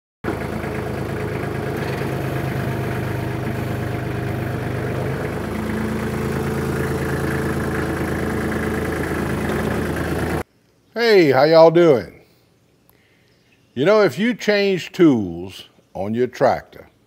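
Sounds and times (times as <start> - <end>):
tractor engine idling: 0.2 - 10.4.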